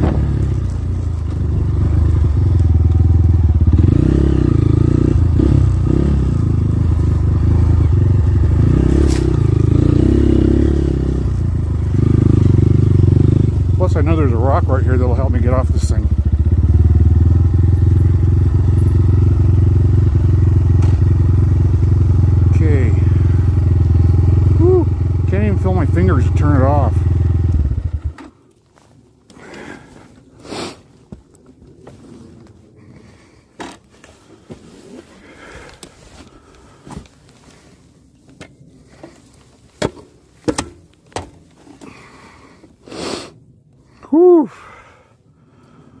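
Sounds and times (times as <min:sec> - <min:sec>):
dirt bike engine running: 0:00.0 - 0:28.3
person breathing hard and sniffing: 0:29.4 - 0:31.0, 0:41.8 - 0:43.4.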